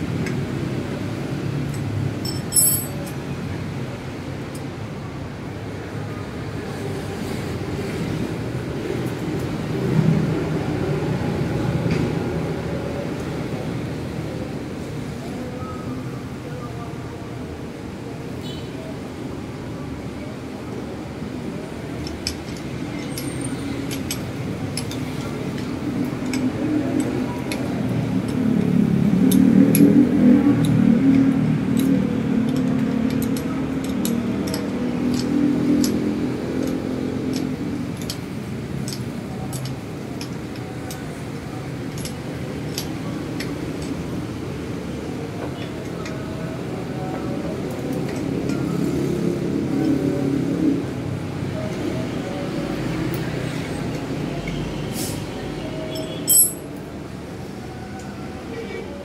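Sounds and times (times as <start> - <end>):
sharp metal clatter: 2.2 - 3.0, 56.3 - 56.6
metallic clinks of hand tools: 2.2 - 3.1, 55.9 - 56.6.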